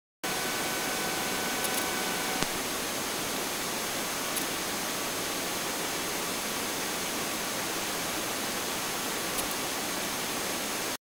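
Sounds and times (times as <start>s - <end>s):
faint high steady tone: 0.2s - 4.6s
radio electronic hiss: 0.2s - 11.0s.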